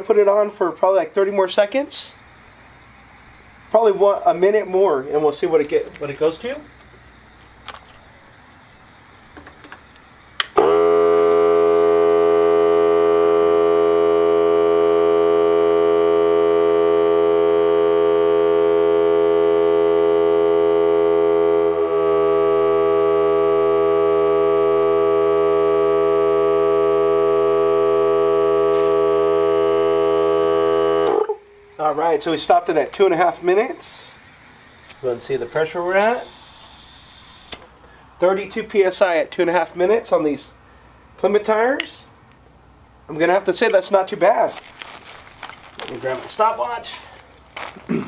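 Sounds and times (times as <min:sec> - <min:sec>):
air compressor whining: 0:03.5 - 0:33.0, 0:34.8 - 0:38.0
compressor switch click: 0:36.0 - 0:37.7.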